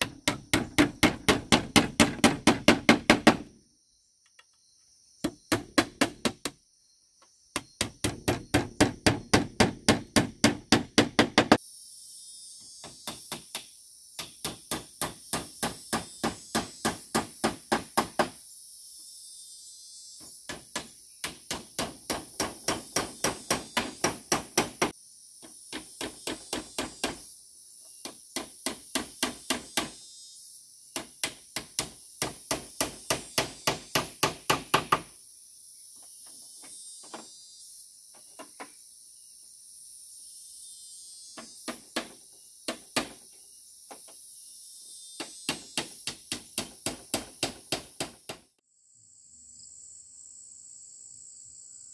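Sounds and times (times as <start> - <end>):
hammer blows on bamboo: 0.0 - 3.5, 5.2 - 6.6, 7.5 - 11.6, 12.6 - 18.4, 20.2 - 27.3, 28.0 - 30.0, 30.9 - 35.1, 41.4 - 43.3, 45.2 - 48.6
high insect drone: 0.0 - 51.9.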